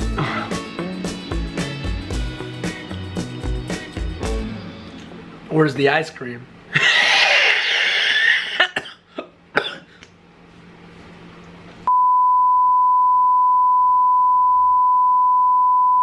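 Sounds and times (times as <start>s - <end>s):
steady test tone beep: 11.9s - 16.0s.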